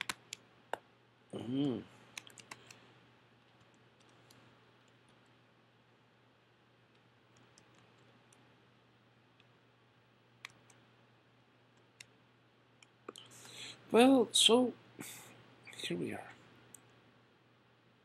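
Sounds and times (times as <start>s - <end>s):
computer keyboard keystrokes: 0.0s - 0.4s, 2.1s - 2.8s, 6.9s - 8.4s
low steady hum: 0.0s - 18.0s.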